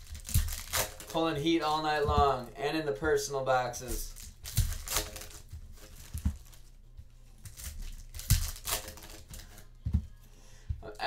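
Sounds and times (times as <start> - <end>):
card pack wrappers crinkling and tearing: 0.0 - 2.5, 3.8 - 6.7, 7.4 - 9.7.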